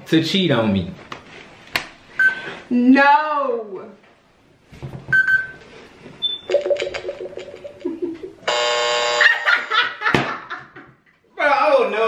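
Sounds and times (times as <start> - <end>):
loud steady buzz: 8.5 - 9.3.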